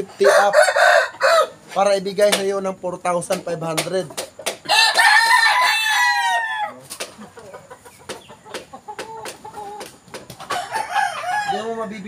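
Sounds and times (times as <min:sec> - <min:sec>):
rooster crowing: 0:00.2 - 0:01.6, 0:04.7 - 0:06.8, 0:10.5 - 0:12.0.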